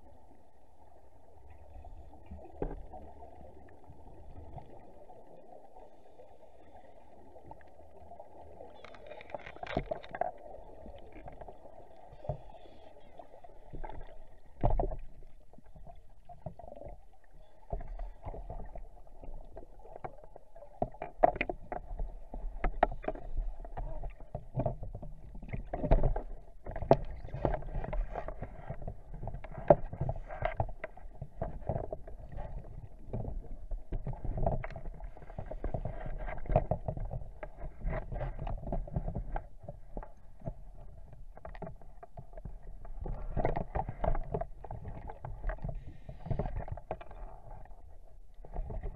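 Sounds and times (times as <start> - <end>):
underwater knocks: 20.0 - 47.8.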